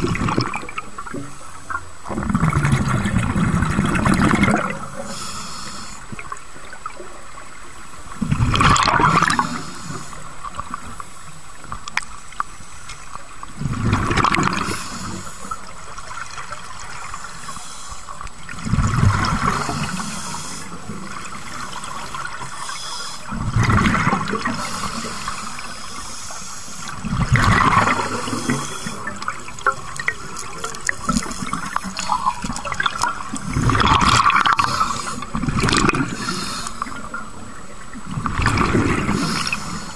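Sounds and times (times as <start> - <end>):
gurgling bubbles exhaled underwater: 0.0 - 5.2, 6.1 - 11.0, 13.2 - 17.3, 18.0 - 39.9
steady regulator hiss: 4.6 - 8.2, 9.1 - 13.4, 14.5 - 18.6, 19.2 - 23.5, 24.4 - 38.1, 38.9 - 39.9.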